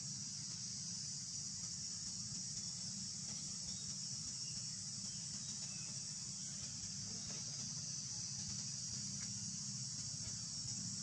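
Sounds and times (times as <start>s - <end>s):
insect chorus drone: 0.0s - 11.0s
low steady hum: 0.0s - 11.0s.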